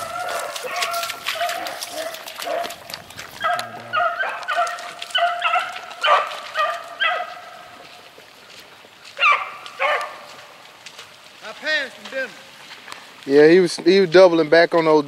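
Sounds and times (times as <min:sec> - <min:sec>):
dogs baying and barking: 0:00.0 - 0:08.0, 0:09.1 - 0:10.7.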